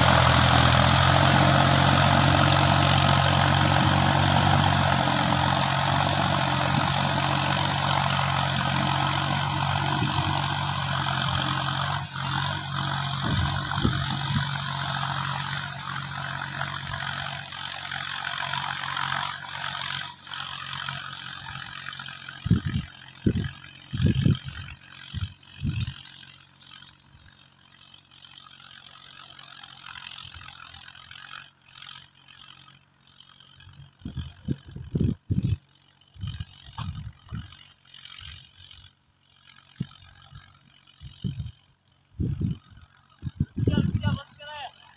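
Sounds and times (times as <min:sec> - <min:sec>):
tractor diesel engine under load: 0:00.0 - 0:44.9.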